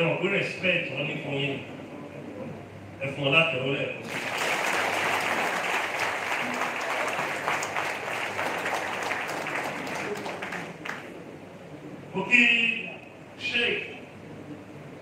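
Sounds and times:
audience applauding: 0:04.0 - 0:11.2.

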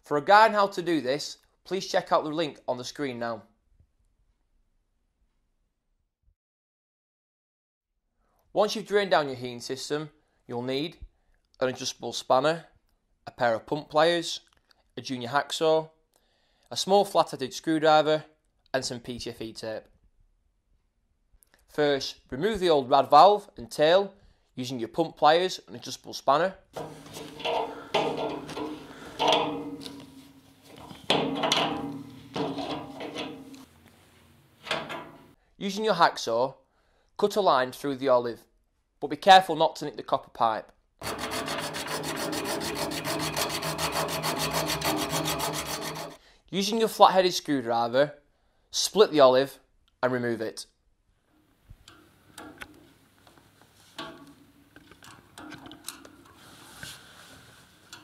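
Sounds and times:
sharp ringing knocks: 0:26.8 - 0:33.7
metal tools clanking on pipe: 0:26.8 - 0:33.9, 0:34.6 - 0:35.4, 0:54.0 - 0:56.9
screwdriver clicking and scraping metal: 0:26.8 - 0:34.0, 0:34.6 - 0:35.4, 0:41.0 - 0:46.2, 0:54.0 - 0:56.4.

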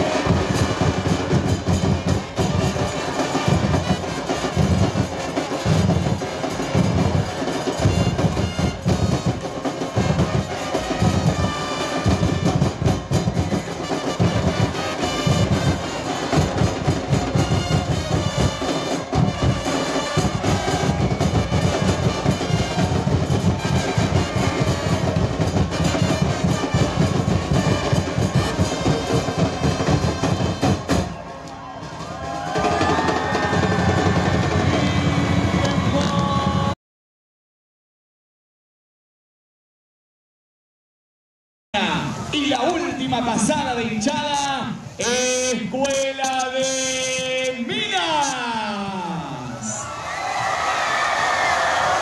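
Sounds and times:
brass playing: 0:00.0 - 0:31.1
bass drums beating: 0:00.0 - 0:36.8.

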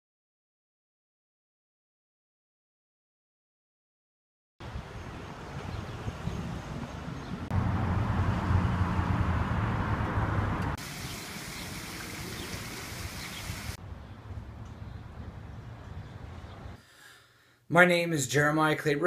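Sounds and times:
traffic noise: 0:04.6 - 0:16.8.

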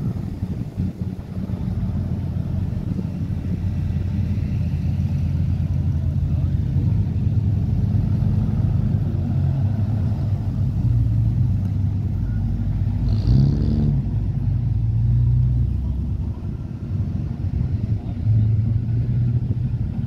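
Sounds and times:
car engines rumbling past: 0:00.0 - 0:20.0
engine revving: 0:12.9 - 0:14.4.

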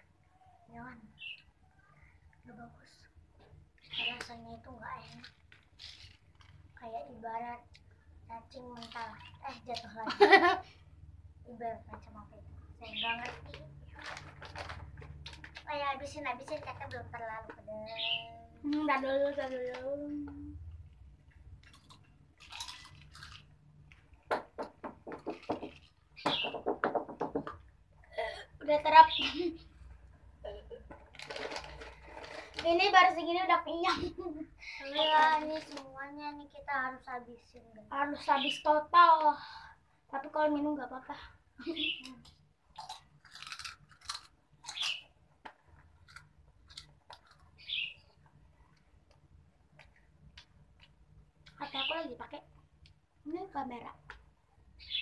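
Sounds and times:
person chewing snacks: 0:21.6 - 0:24.1, 0:31.0 - 0:32.6, 0:42.7 - 0:45.0, 0:45.7 - 0:47.6.

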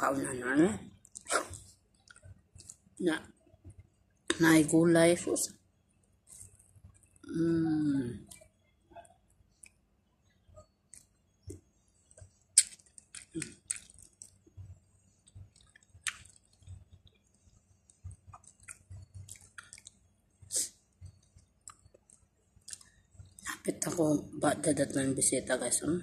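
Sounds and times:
person chewing crunchy food: 0:12.2 - 0:14.6, 0:15.2 - 0:23.5.

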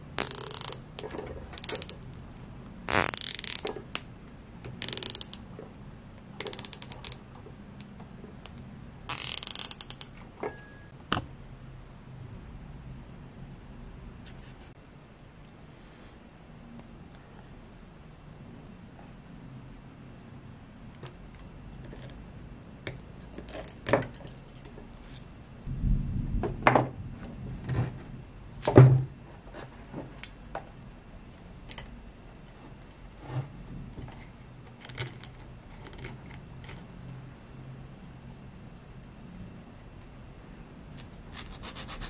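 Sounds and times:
metal parts clicking and clinking: 0:00.2 - 0:02.1, 0:03.0 - 0:04.0, 0:04.8 - 0:05.7, 0:06.4 - 0:07.2.

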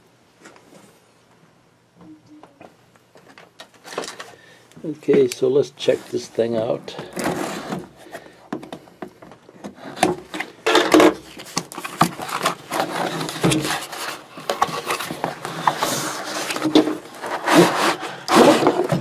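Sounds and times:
cardboard scraping and knocking: 0:08.6 - 0:19.0.

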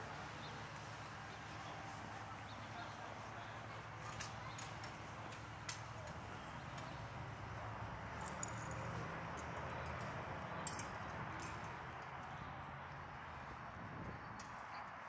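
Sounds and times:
street hum: 0:00.0 - 0:15.0.

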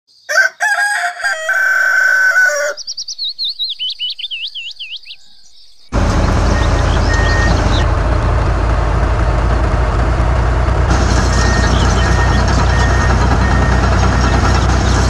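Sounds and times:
rooster crowing: 0:00.3 - 0:02.8, 0:04.3 - 0:05.8
small bird chirping: 0:02.7 - 0:07.9, 0:11.2 - 0:14.8
loud engine-like noise: 0:05.9 - 0:15.0.

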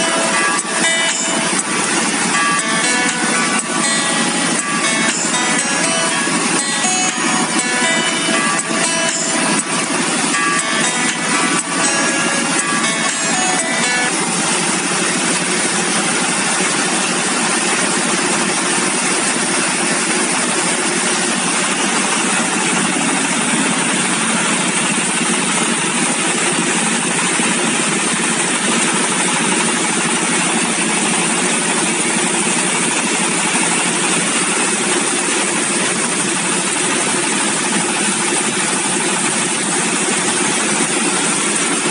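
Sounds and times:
machine rotor running: 0:00.0 - 0:41.9
stationary engine running: 0:00.0 - 0:41.9.

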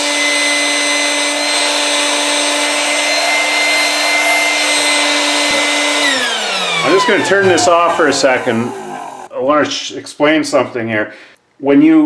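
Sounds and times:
electric pump fan whirring: 0:00.0 - 0:09.3.

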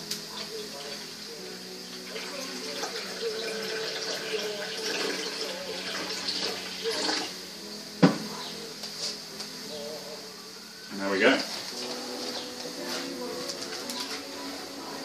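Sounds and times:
water pouring into steel bowl: 0:01.9 - 0:07.3
glass bottle set down on table: 0:08.0 - 0:08.2.

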